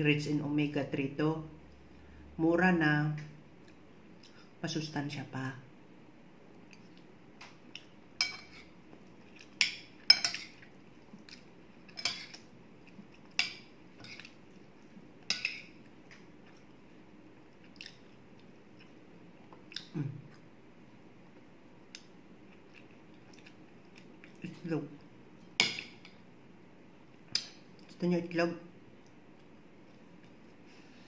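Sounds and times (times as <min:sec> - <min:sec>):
cutlery clinking on a plate: 0:09.6 - 0:10.6.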